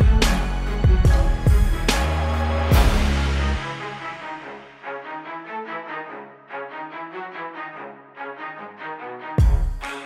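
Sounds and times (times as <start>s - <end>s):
drums: 0.0s - 3.7s, 9.4s - 9.9s.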